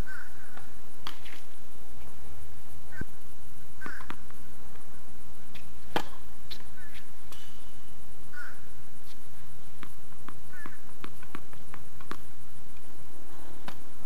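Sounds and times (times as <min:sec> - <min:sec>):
tennis ball bouncing on hard court: 0:03.8 - 0:04.4, 0:05.9 - 0:07.5, 0:09.8 - 0:12.3.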